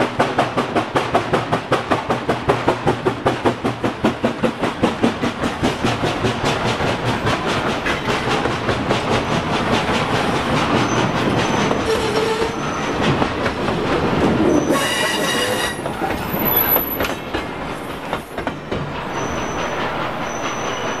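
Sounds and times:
steam locomotive chuffing: 0:00.0 - 0:21.0
train rail clatter: 0:00.0 - 0:21.0
wheels squealing on rails: 0:05.5 - 0:21.0.

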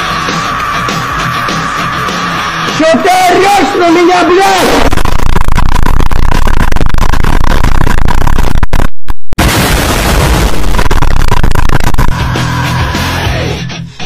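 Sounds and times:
monsters yelling distorted: 0:00.8 - 0:05.0, 0:12.1 - 0:13.7
loud explosion blast: 0:09.4 - 0:12.2.

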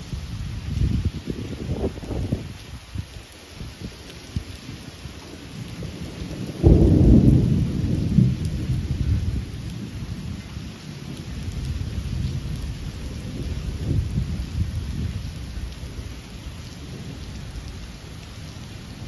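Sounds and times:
steady rain: 0:00.0 - 0:19.0
thunder clap and rumble: 0:05.6 - 0:18.2.

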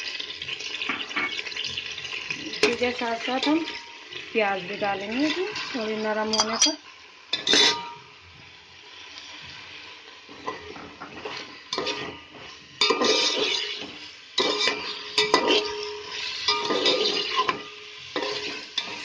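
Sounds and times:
onions sizzling in oil: 0:00.0 - 0:19.0
metal spoon scraping pot: 0:05.2 - 0:06.8, 0:07.4 - 0:08.0, 0:10.4 - 0:12.2, 0:12.8 - 0:19.0.

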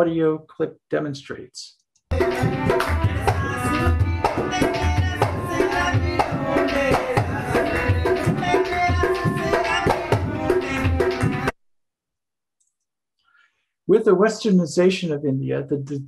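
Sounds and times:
drums playing lively rhythm: 0:02.1 - 0:11.5.

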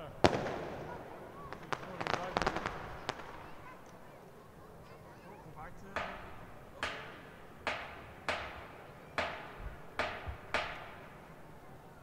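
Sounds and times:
drum strikes with echo: 0:05.9 - 0:11.3.

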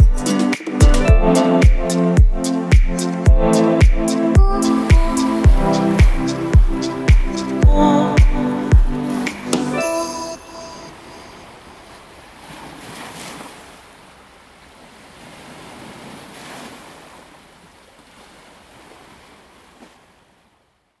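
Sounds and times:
waves washing against shore: 0:04.4 - 0:20.2.

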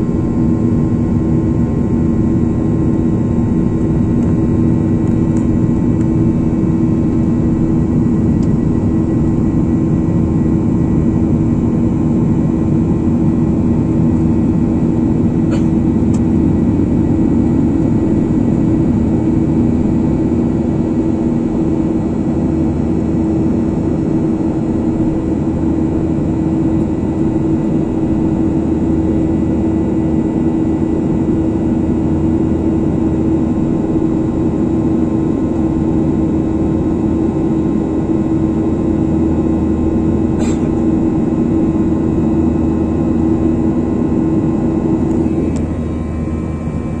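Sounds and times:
constant hum: 0:00.0 - 0:47.0
jet engine cabin drone: 0:00.0 - 0:47.0.

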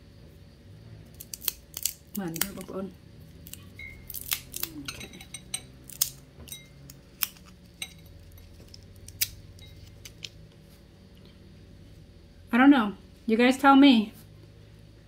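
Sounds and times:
chestnut shell cracking: 0:01.1 - 0:02.8, 0:03.4 - 0:10.4.

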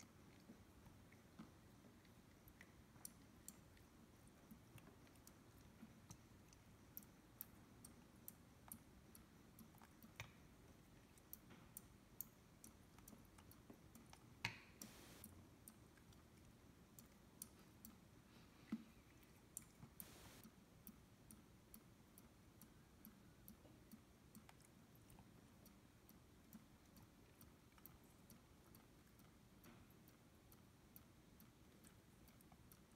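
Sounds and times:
clicks: 0:20.0 - 0:20.4.

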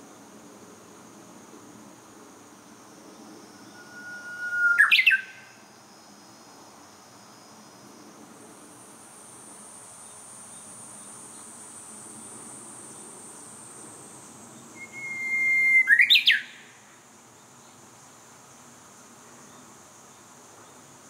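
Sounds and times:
bush warbler singing: 0:03.6 - 0:05.4, 0:14.6 - 0:16.6.

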